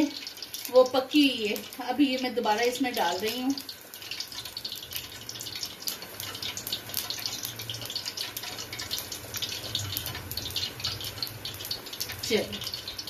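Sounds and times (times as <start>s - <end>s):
food sizzling in hot oil: 0.0s - 13.0s.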